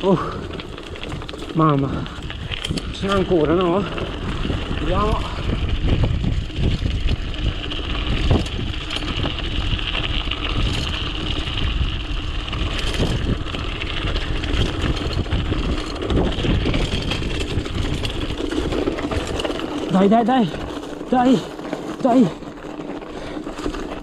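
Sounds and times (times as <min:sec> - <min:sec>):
tyres rumbling on dirt: 0:00.0 - 0:24.0
wind buffeting microphone: 0:00.0 - 0:24.0
bike knocks and rattles: 0:00.2 - 0:24.0.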